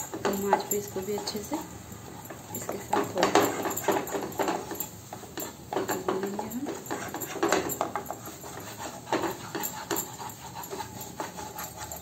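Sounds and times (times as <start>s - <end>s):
spatula scraping a pan: 0.0s - 12.0s.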